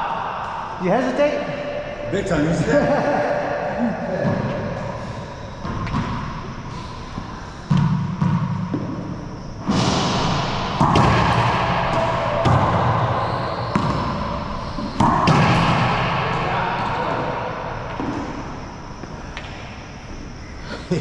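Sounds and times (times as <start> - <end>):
racquet hitting ball: 5.6 - 19.7
ball banging off court walls: 7.7 - 17.2.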